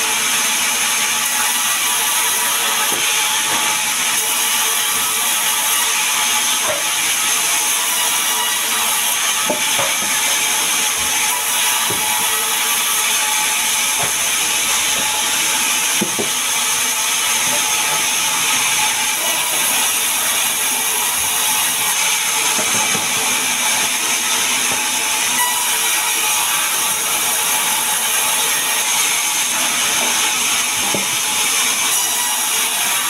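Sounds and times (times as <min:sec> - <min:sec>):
band saw cutting wood: 0:00.0 - 0:33.0.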